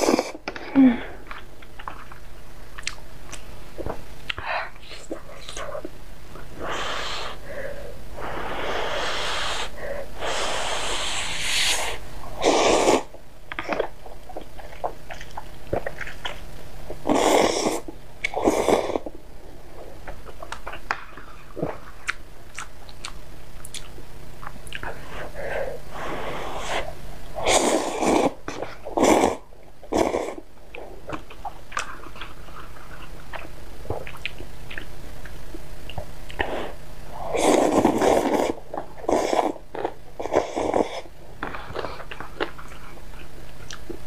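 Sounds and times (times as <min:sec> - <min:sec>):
person slurping noodles: 0:08.2 - 0:13.1, 0:17.0 - 0:19.1, 0:26.0 - 0:30.4, 0:36.4 - 0:41.1.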